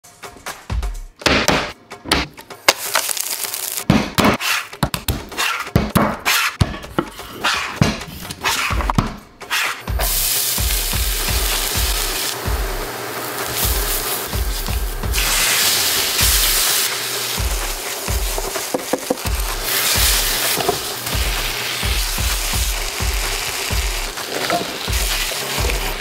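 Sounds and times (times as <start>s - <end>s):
background music with steady beat: 0.0s - 3.0s, 3.8s - 26.0s
onion sizzling in hot oil: 2.8s - 3.9s, 9.9s - 26.0s.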